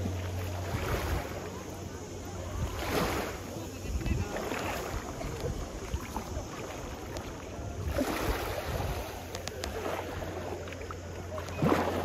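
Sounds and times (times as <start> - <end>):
small waves washing on shore: 0.0 - 12.0
wind on microphone: 2.4 - 10.4.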